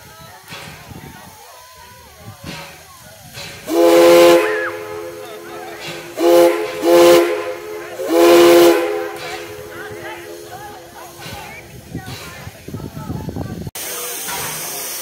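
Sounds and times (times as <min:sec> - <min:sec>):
steam hissing: 0:00.0 - 0:15.0
steam whistle blasts: 0:03.7 - 0:10.6.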